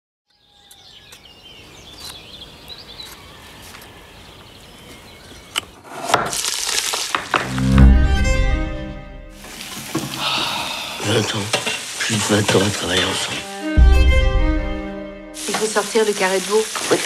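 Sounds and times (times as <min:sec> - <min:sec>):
birds chirping: 0:00.3 - 0:05.8
meat sizzling in hot pot: 0:09.3 - 0:10.4, 0:11.0 - 0:13.5, 0:15.4 - 0:17.0.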